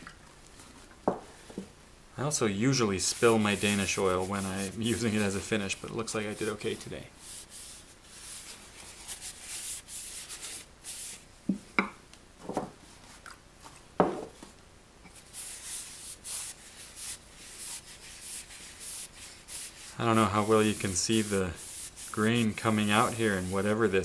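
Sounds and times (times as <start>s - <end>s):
paper towel rubbing wood: 2.7s - 11.2s, 15.2s - 24.0s.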